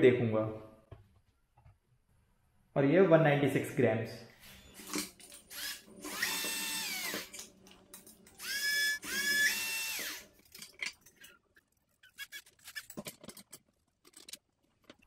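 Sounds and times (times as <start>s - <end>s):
power drill spinning: 4.4s - 7.5s, 8.3s - 10.4s, 12.0s - 12.9s.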